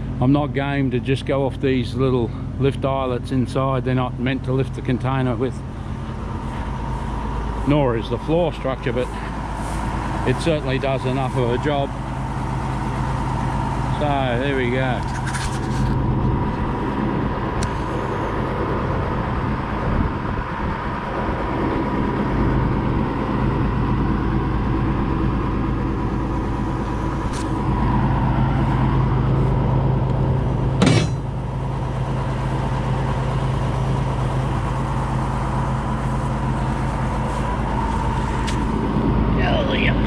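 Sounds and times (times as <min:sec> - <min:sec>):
diesel engine idling: 0:00.0 - 0:40.0
thin steady whine: 0:00.0 - 0:40.0
sharp metallic knock: 0:30.8 - 0:31.3.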